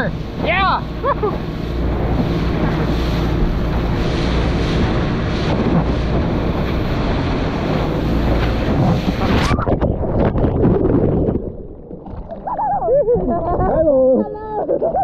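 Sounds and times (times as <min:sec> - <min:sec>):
wind buffeting microphone: 0:00.0 - 0:11.7
rushing water: 0:00.0 - 0:15.0.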